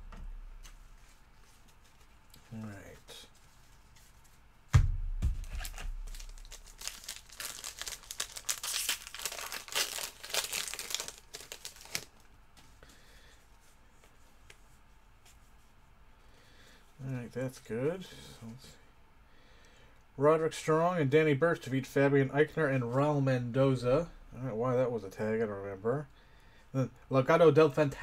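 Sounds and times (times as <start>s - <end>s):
sharp thump: 4.7s - 6.0s
foil wrapper crinkling and tearing: 5.4s - 12.3s.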